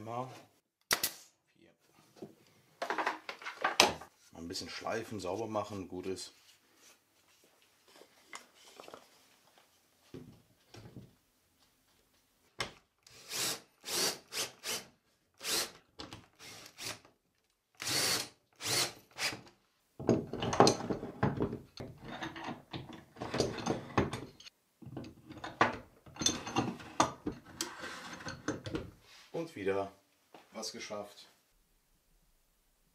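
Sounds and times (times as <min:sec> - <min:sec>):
cordless drill driving screws: 0:13.1 - 0:17.1, 0:17.8 - 0:19.4.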